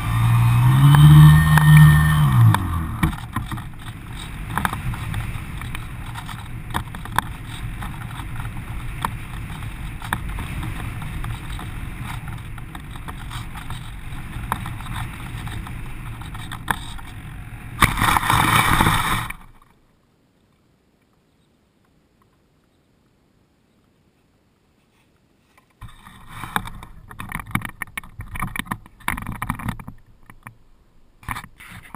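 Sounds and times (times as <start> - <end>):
airflow rushing over camera: 0.0 - 19.6
plane sliding through grass: 0.0 - 19.6
knocks and rustles of handling: 24.8 - 30.6.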